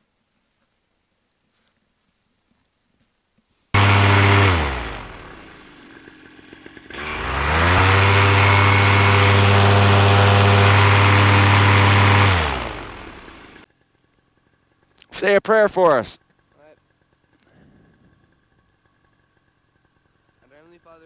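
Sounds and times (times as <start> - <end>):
paramotor engine revving: 3.8 - 13.6.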